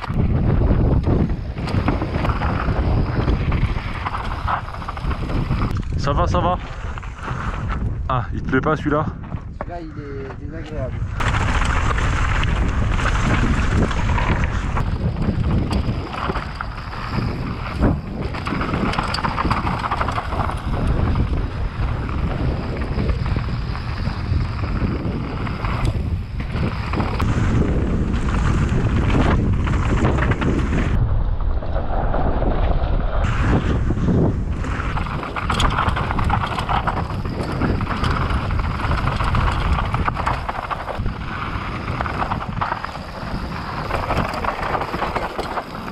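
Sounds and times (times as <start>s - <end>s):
tyres rattling over rough ground: 0.0s - 31.0s, 33.2s - 45.9s
wind buffeting microphone: 0.0s - 45.9s
bike clicks and knocks: 9.2s - 23.5s, 34.5s - 45.9s.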